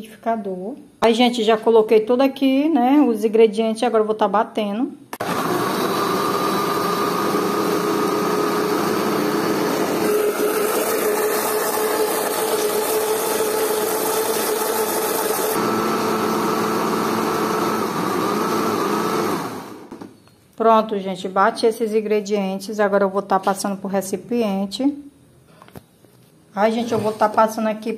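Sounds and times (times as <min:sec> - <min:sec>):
electric blender running: 0:05.2 - 0:19.9.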